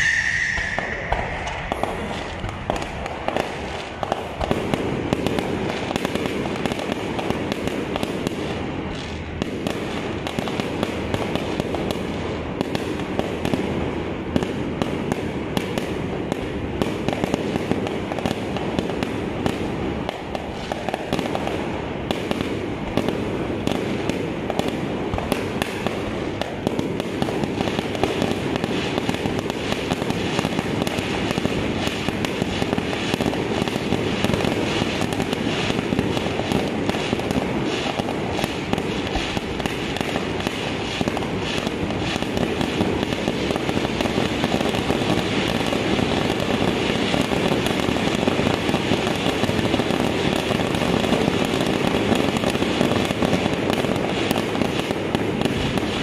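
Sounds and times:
fireworks popping and crackling: 0.0 - 56.0.

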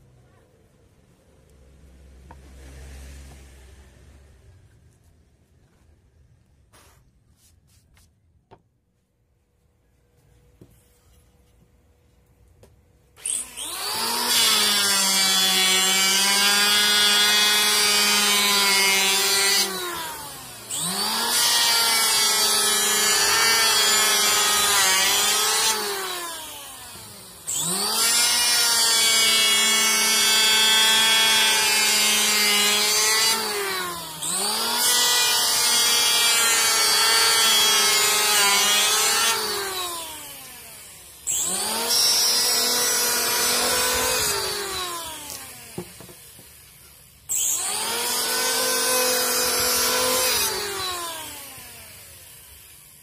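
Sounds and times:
electric planer shaving wood: 13.2 - 52.7.

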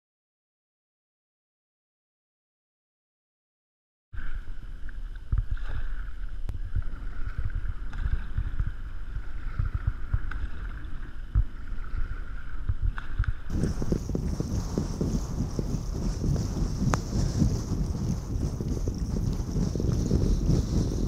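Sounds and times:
paddle strokes in water: 4.2 - 21.0
wind buffeting microphone: 5.3 - 21.0.

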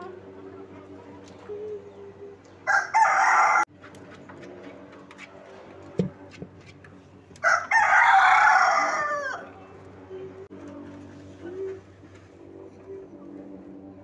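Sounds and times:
rooster crowing: 2.7 - 3.7, 7.4 - 9.6.

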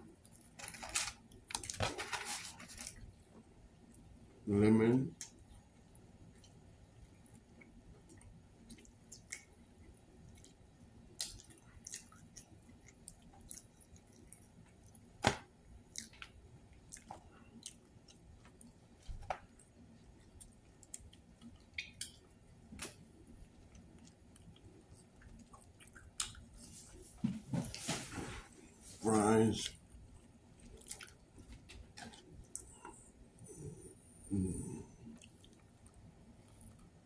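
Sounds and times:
person chewing fried food: 7.3 - 15.1, 15.8 - 27.0, 29.7 - 33.8.

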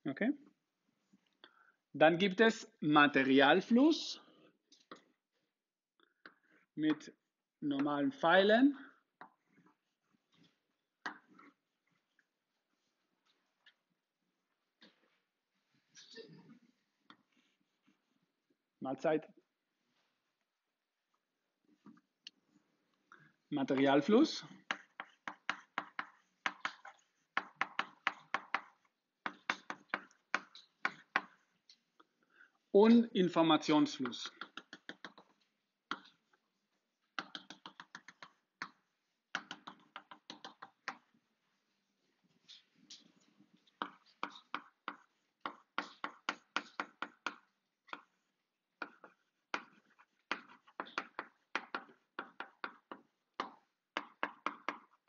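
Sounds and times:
chalk tapping on blackboard: 11.0 - 11.6, 23.6 - 31.8, 33.8 - 41.2, 42.5 - 55.0.

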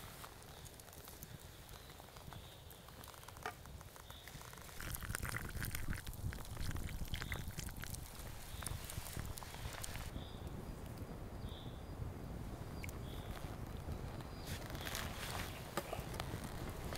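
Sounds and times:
campfire crackling: 0.0 - 16.9
water pouring into a mug: 4.7 - 9.4.

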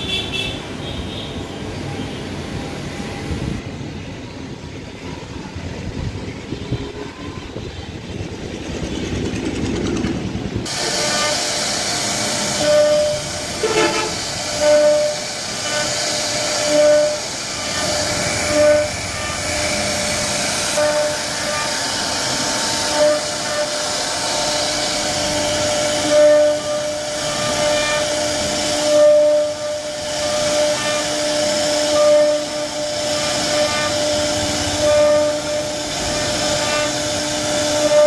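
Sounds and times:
router spindle carving wood: 10.7 - 38.0.

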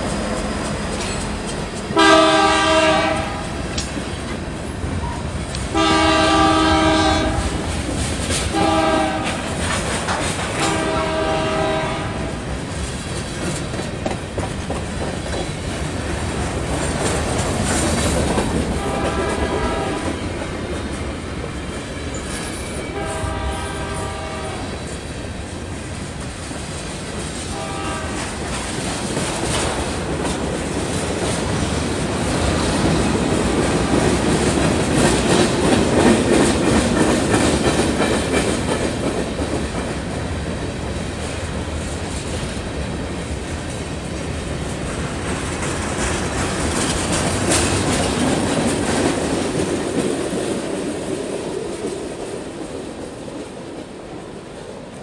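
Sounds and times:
freight train rumbling: 0.0 - 55.0
wheels clacking on rails: 0.0 - 55.0
locomotive air horn blasts: 2.0 - 3.6, 5.7 - 7.6, 8.5 - 9.4, 10.6 - 12.3, 18.8 - 20.0, 22.9 - 24.7, 27.5 - 28.3.

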